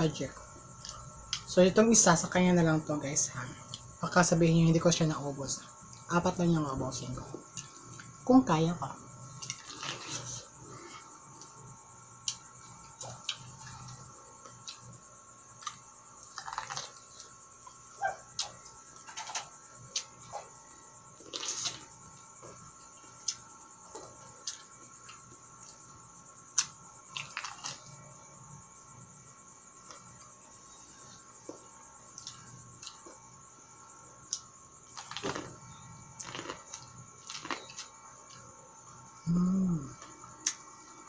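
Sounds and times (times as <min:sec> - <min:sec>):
corn cob being chewed: 0:09.4 - 0:10.5, 0:15.6 - 0:17.3, 0:26.5 - 0:27.9, 0:34.3 - 0:35.6, 0:36.2 - 0:38.5.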